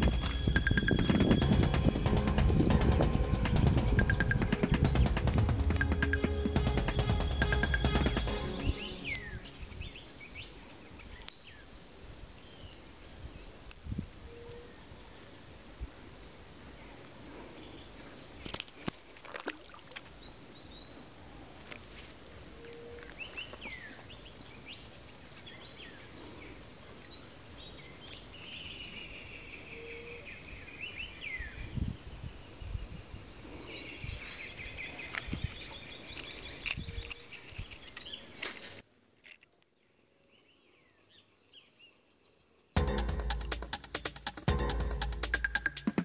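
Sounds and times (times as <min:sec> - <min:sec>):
low thumps: 0:00.0 - 0:09.9.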